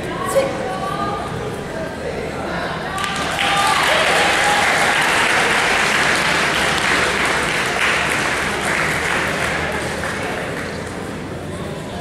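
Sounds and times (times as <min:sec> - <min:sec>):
audience applauding: 0:03.0 - 0:11.1.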